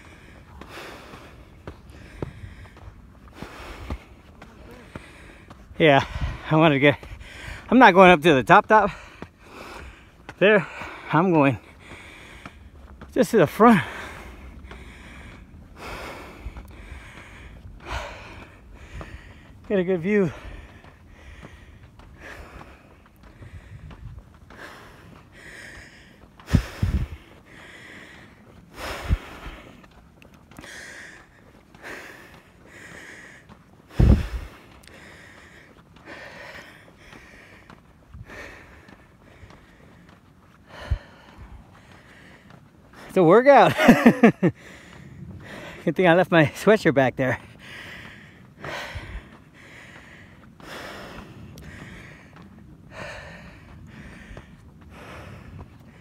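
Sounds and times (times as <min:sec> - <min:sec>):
person breathing hard: 0:00.0 - 0:07.7, 0:08.8 - 0:43.1, 0:43.8 - 0:45.9, 0:47.4 - 0:56.0.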